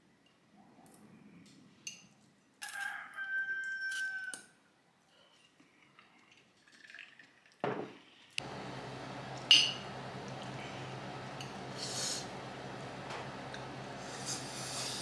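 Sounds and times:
low room hum: 8.4s - 15.0s.

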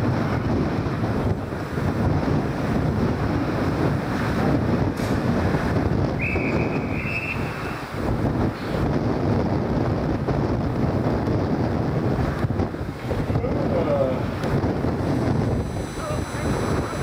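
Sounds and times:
wind buffeting microphone: 0.0s - 17.0s
whistle blown: 6.2s - 7.8s.

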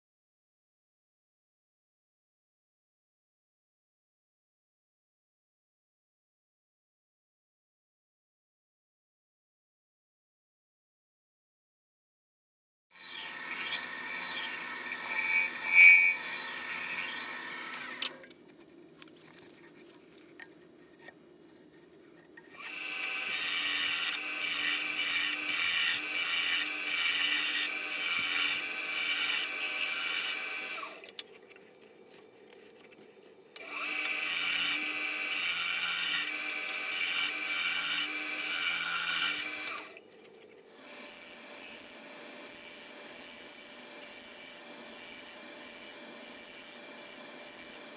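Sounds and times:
lathe motor hum: 13.2s - 18.2s, 22.6s - 31.0s
gouge scraping wood on lathe: 19.2s - 31.5s, 33.8s - 39.7s.

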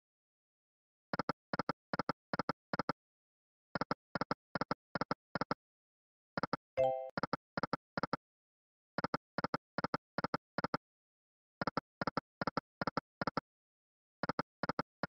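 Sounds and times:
brief chime: 6.8s - 7.2s.

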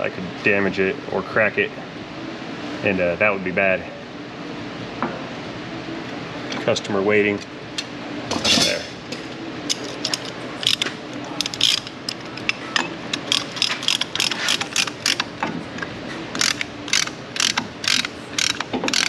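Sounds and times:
ratcheting piston compressor clicking: 9.7s - 19.0s.

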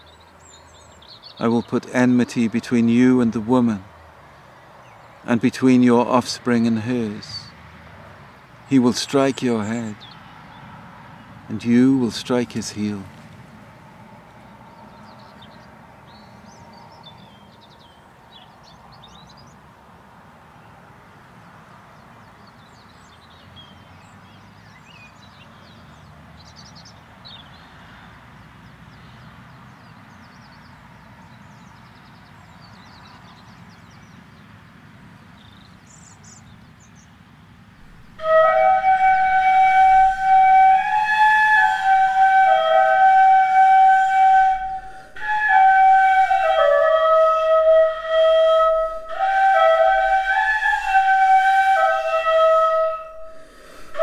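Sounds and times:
flute playing slow tune: 37.8s - 54.0s.

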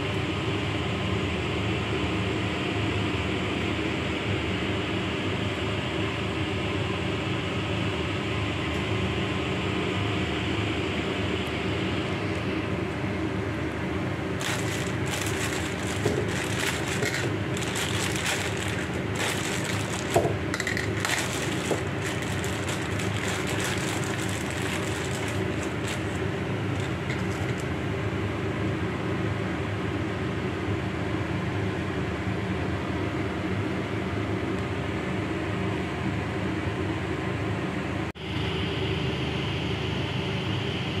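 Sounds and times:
steady machine hum: 14.1s - 28.1s
crackling and rustling: 14.4s - 27.8s.

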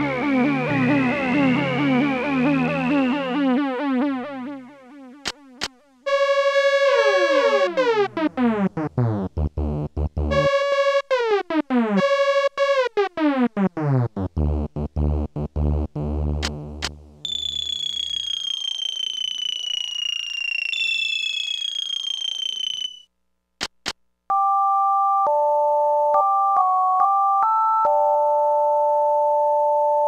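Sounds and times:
electronic keyboard tones: 0.0s - 8.9s, 9.5s - 16.1s, 17.2s - 23.0s
fast run of sliding notes: 0.0s - 10.5s
short clicks: 16.4s - 17.0s.

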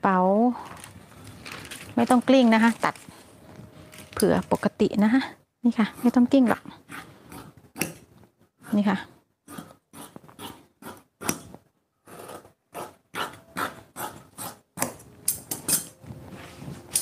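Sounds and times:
cloth rustling: 0.6s - 4.6s, 15.9s - 17.0s
shears snipping cloth: 6.0s - 8.0s, 9.5s - 11.6s.

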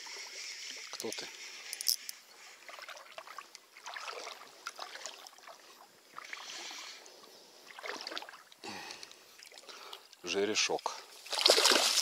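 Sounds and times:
water splashing: 2.6s - 6.8s, 7.7s - 8.6s, 11.2s - 12.0s.

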